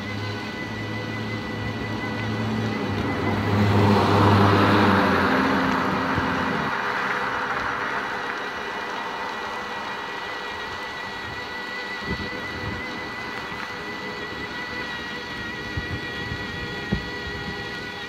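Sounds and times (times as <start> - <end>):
thin high motor whine: 0.0 - 18.0
tyre and wind noise: 11.1 - 18.0.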